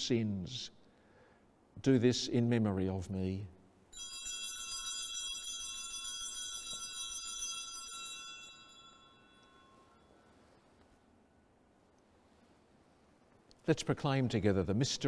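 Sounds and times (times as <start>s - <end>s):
altar bells ringing: 3.9s - 10.7s.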